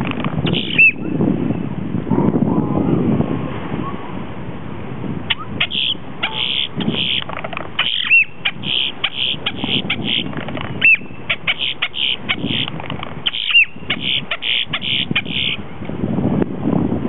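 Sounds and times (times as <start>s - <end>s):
bird whistle rising and falling: 0.5s - 1.1s, 7.8s - 12.7s
bird clicks and rattles: 7.1s - 8.0s, 12.6s - 13.6s.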